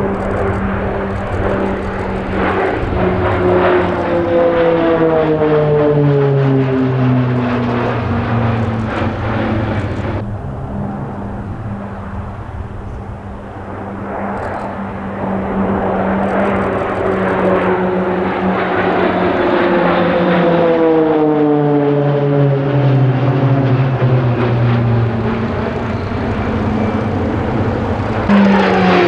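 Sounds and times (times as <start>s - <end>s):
propeller aircraft droning overhead: 0.0s - 29.0s.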